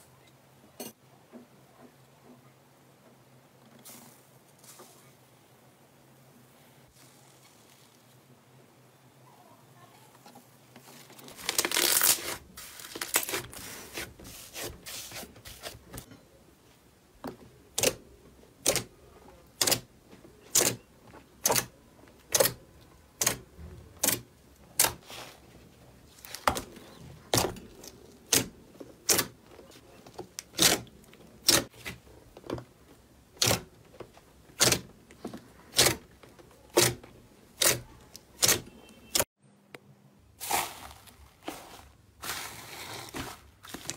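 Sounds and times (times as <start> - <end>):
slime crackling and tearing: 11.2 - 15.2.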